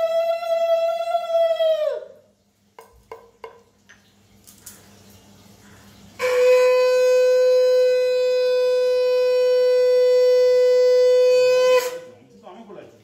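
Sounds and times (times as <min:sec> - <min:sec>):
conch shell blown: 0:00.0 - 0:02.0, 0:06.2 - 0:12.2.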